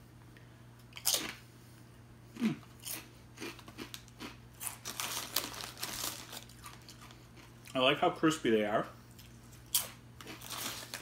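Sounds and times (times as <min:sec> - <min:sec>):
potato chip crunching: 0:02.4 - 0:07.8, 0:09.2 - 0:11.0.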